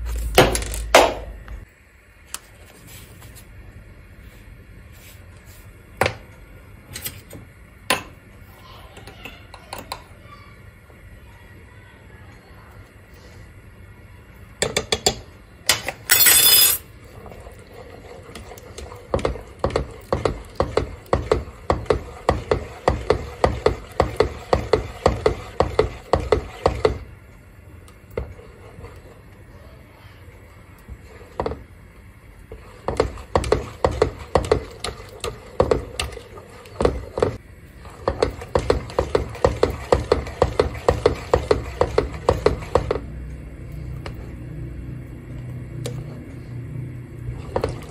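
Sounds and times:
whisk knocking against pot: 18.4 - 27.0, 32.5 - 37.4, 38.0 - 43.1.

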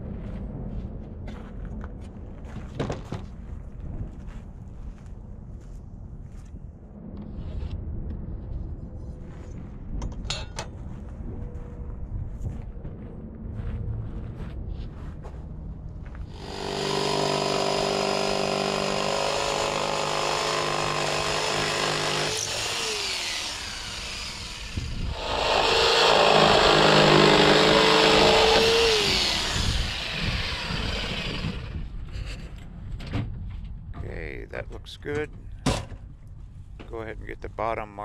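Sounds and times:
power saw cutting plywood: 16.3 - 31.8
saw motor winding down: 16.3 - 31.8.

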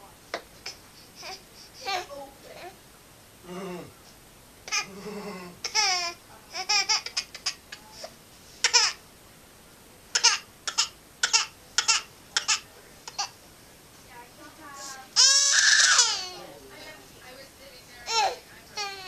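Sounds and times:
baby crying: 15.2 - 16.6, 18.0 - 19.0.

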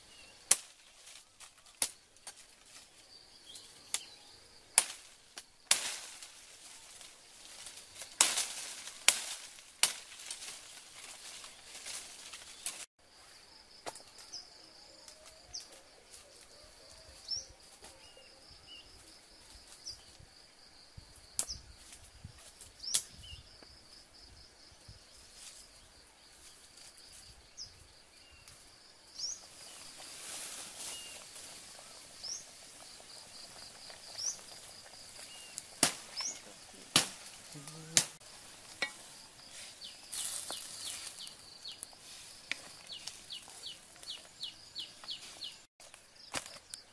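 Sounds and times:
rustling of dry leaves: 0.0 - 20.6, 21.2 - 46.9
twigs snapping: 0.5 - 2.8, 4.7 - 12.9, 33.1 - 46.9
high insect drone: 23.2 - 46.9
bird chirps: 39.5 - 41.9.

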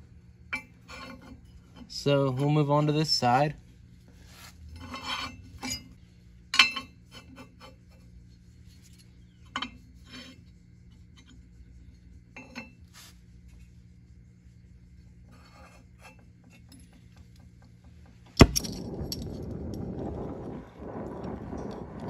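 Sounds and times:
metal scraping and rubbing: 0.6 - 3.3, 4.2 - 6.0, 15.2 - 16.7.

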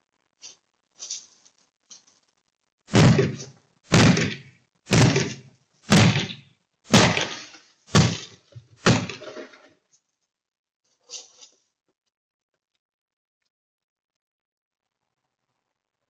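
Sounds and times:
heavy blows smashing car windows: 2.9 - 9.6.

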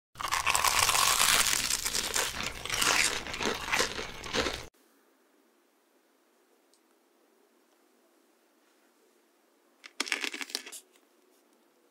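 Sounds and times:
crisp crackling and crinkling: 0.2 - 4.7.

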